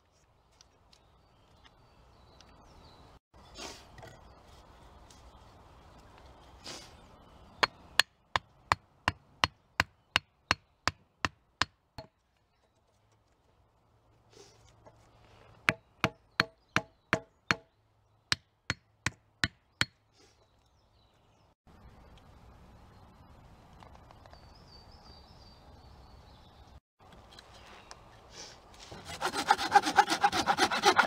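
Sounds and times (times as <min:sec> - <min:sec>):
hatchet knocking wooden peg: 0:15.7 - 0:17.7, 0:18.3 - 0:20.0.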